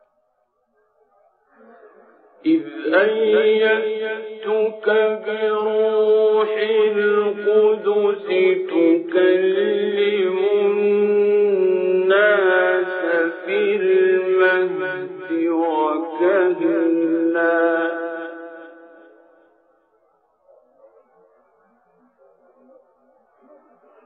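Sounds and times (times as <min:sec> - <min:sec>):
man chanting melodically: 0:01.6 - 0:19.4.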